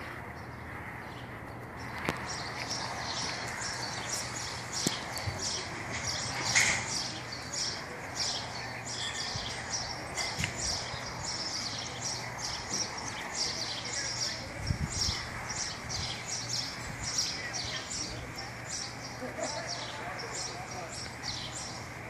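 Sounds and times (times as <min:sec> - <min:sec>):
small birds chirping: 0:00.0 - 0:22.0.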